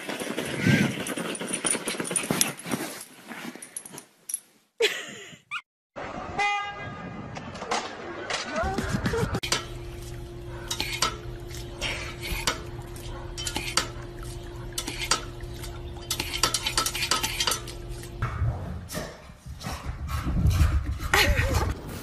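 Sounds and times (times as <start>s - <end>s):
low hum: 8.8s - 21.5s.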